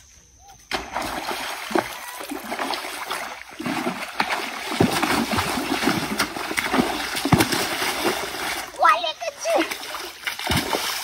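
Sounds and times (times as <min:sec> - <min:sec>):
churned water washing: 0:00.7 - 0:11.0.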